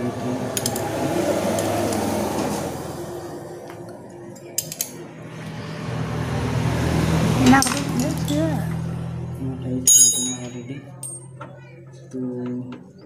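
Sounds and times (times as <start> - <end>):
spanner clinking on a nut: 9.9 - 11.3.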